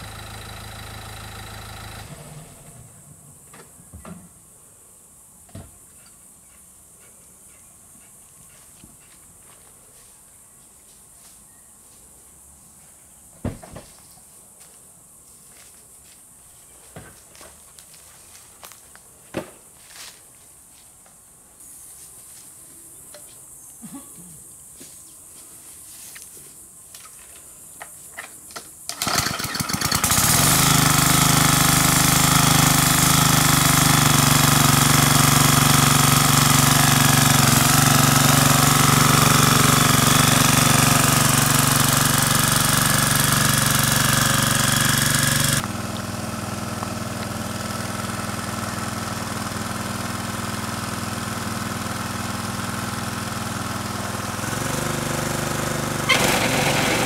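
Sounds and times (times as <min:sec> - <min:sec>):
small petrol engine running: 0:00.0 - 0:02.9, 0:28.9 - 0:57.0
engine starter clicks: 0:28.8 - 0:31.1, 0:56.1 - 0:57.0.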